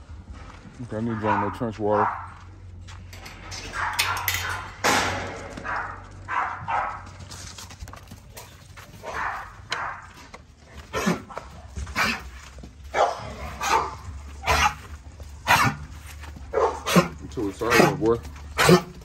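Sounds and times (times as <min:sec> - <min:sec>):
dog barking: 0:01.0 - 0:02.4, 0:03.6 - 0:04.8, 0:05.5 - 0:07.1, 0:09.0 - 0:10.2, 0:12.9 - 0:14.8, 0:15.4 - 0:15.9, 0:16.5 - 0:18.9.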